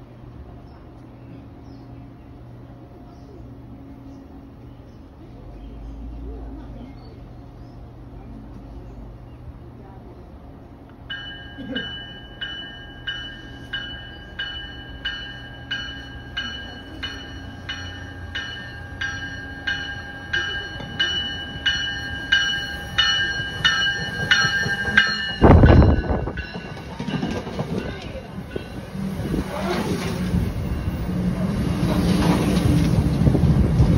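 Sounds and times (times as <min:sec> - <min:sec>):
low train rumble: 0:00.0 - 0:33.9
train bell ringing: 0:11.1 - 0:31.9
train rushing past: 0:11.1 - 0:33.9.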